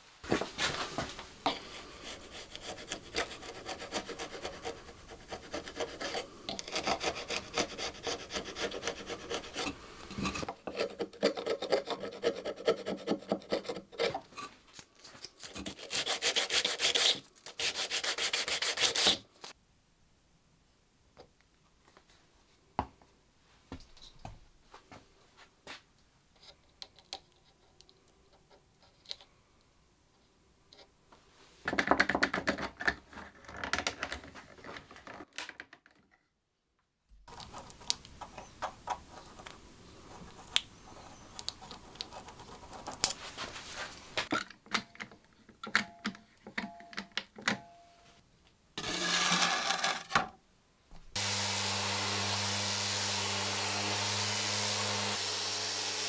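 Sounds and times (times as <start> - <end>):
hand tools scraping wood: 0.3 - 14.6, 15.4 - 19.2, 48.8 - 50.1, 51.2 - 56.0
orbital sander humming: 51.2 - 56.0.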